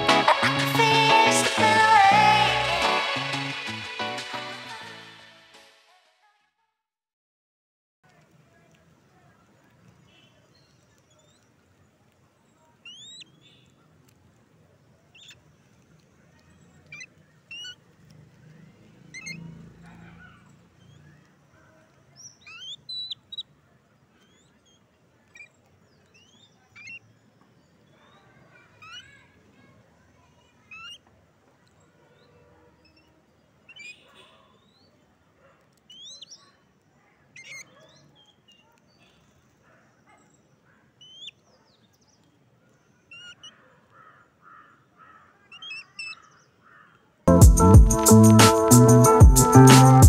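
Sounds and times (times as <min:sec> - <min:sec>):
babblers chirping: 0:16.5 - 0:17.8, 0:19.0 - 0:21.3, 0:22.2 - 0:23.6, 0:24.2 - 0:27.1, 0:28.1 - 0:29.4, 0:32.8 - 0:34.9, 0:37.2 - 0:39.1, 0:43.0 - 0:46.4
rasping bird calls: 0:16.8 - 0:17.8, 0:19.0 - 0:21.2, 0:22.3 - 0:23.5, 0:33.7 - 0:34.8, 0:43.1 - 0:47.0.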